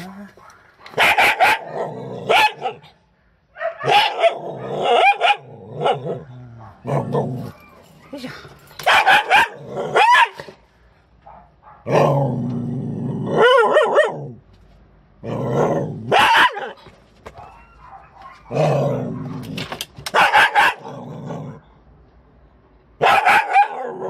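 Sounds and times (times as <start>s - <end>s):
dog barking sharply: 0.4s - 1.7s, 3.6s - 6.0s, 8.8s - 10.6s, 16.1s - 16.8s, 20.1s - 20.9s, 23.0s - 24.0s
dog growling: 4.2s - 7.6s, 11.8s - 14.4s, 15.2s - 16.2s, 18.4s - 19.6s, 20.8s - 21.8s.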